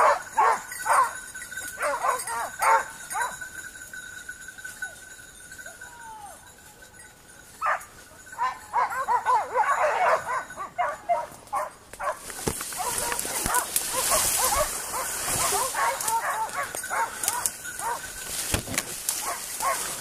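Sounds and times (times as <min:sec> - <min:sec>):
hounds baying in chorus: 0:00.0 - 0:03.7, 0:07.4 - 0:20.0
leaves and branches rustling: 0:09.6 - 0:20.0.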